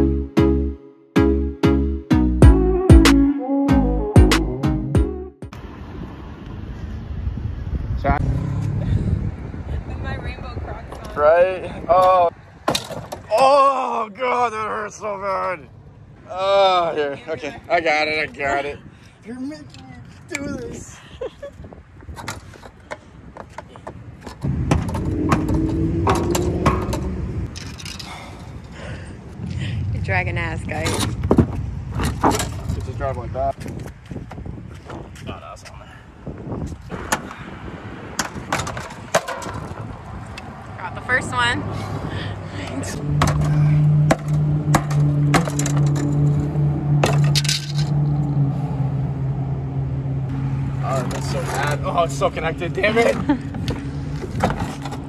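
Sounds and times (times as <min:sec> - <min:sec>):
loud low engine-like drone: 0:24.5 - 0:27.5.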